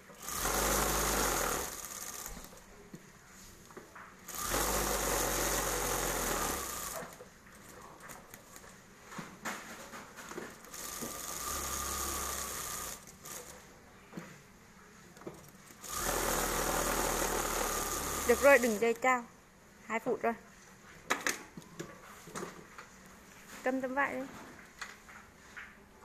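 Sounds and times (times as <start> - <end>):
sewing machine stitching: 0.0 - 2.6, 4.3 - 8.6, 10.3 - 13.7, 15.3 - 19.2.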